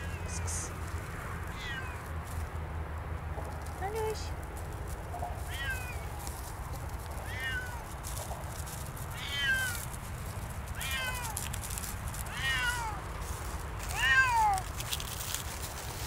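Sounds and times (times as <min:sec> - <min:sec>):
cat meowing: 0:01.5 - 0:02.1, 0:05.4 - 0:06.1, 0:07.2 - 0:07.9, 0:09.1 - 0:09.8, 0:10.8 - 0:11.4, 0:12.3 - 0:13.1, 0:13.8 - 0:14.7.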